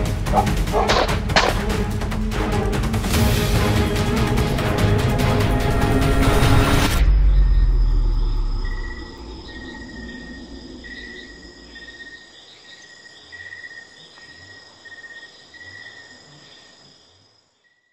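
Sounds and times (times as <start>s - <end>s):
deep rumble: 5.9s - 11.9s
insect chirping in pulses: 7.0s - 17.9s
insects buzzing: 7.0s - 17.9s.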